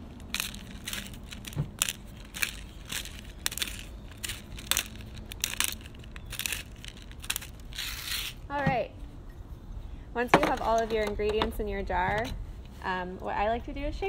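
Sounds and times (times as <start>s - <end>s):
pepper mill grinding: 0.0s - 8.4s.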